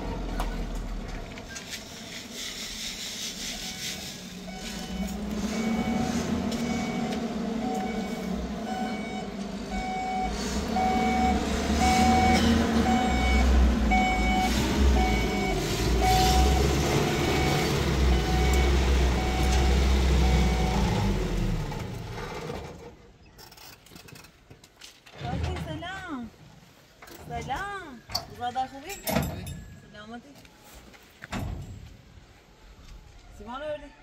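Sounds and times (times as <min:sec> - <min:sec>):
heavy engine rumbling: 0:00.0 - 0:23.6
reversing alarm beeping: 0:03.6 - 0:21.1.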